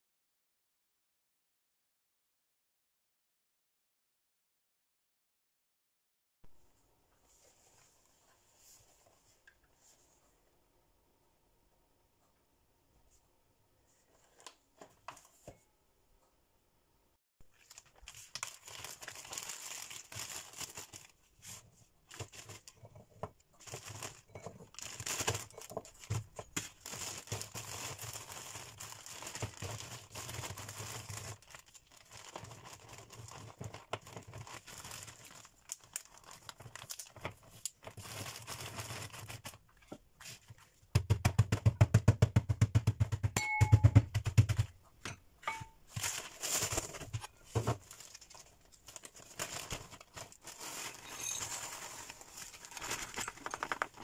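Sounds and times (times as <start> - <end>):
plastic bag crinkling: 17.5 - 21.4, 22.0 - 39.6, 45.9 - 54.0
rapid knocks beating biscuits: 23.2 - 28.3, 40.8 - 45.1.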